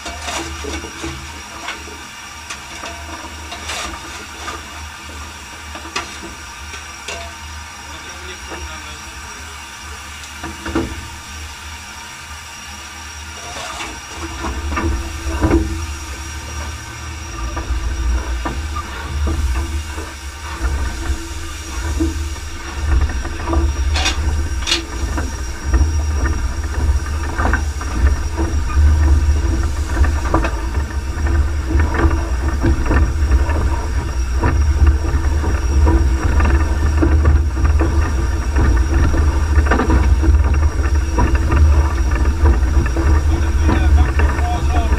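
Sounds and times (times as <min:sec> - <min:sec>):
steam locomotive rumble: 0:00.0 - 0:44.9
steam hiss: 0:07.9 - 0:35.8
knocks and clanks: 0:13.5 - 0:44.9.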